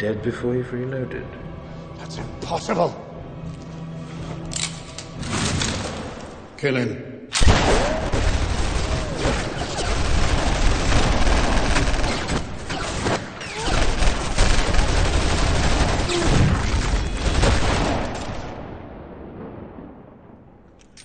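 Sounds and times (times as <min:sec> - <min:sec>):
many handguns firing: 0:07.4 - 0:18.6.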